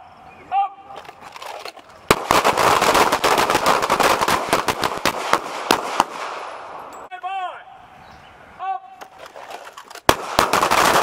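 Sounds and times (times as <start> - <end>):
volley of pistol shots: 2.1 - 6.8, 10.1 - 11.0.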